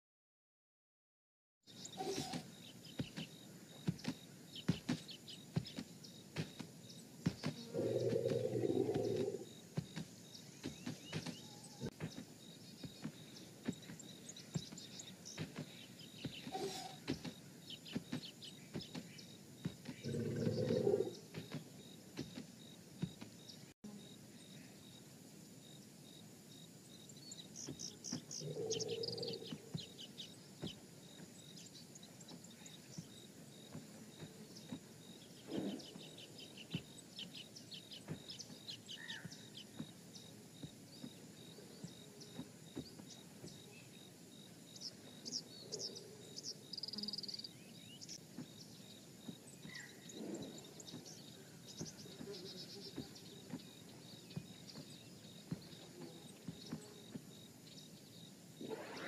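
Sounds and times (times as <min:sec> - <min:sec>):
short bird chirps: 0:01.7 - 0:05.8, 0:10.3 - 0:21.6, 0:58.6 - 0:59.0
insect chirping: 0:01.7 - 0:59.0
low animal calls: 0:01.9 - 0:02.6, 0:07.4 - 0:09.6, 0:16.4 - 0:17.4, 0:19.8 - 0:21.6, 0:28.3 - 0:29.8, 0:35.4 - 0:36.4, 0:49.7 - 0:51.0, 0:58.6 - 0:59.0.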